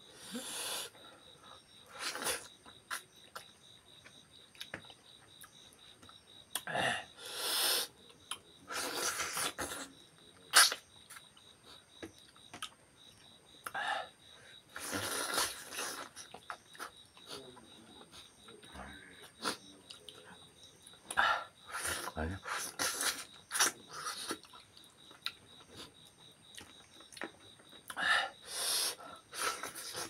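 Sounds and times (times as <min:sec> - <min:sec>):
slurping sounds: 0:02.0 - 0:03.0, 0:08.7 - 0:09.9, 0:10.5 - 0:10.8, 0:14.8 - 0:16.2.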